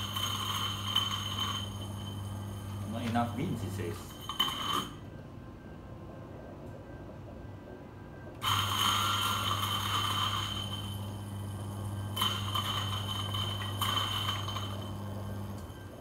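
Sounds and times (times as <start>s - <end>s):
coffee beans crackling: 0.0s - 2.2s, 8.5s - 15.0s
coffee grinder motor hum: 0.0s - 2.8s, 8.4s - 16.0s.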